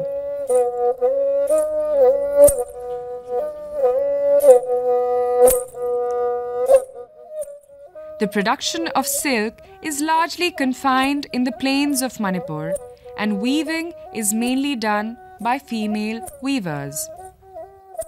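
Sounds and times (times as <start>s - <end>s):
flute melody: 0.0s - 18.0s.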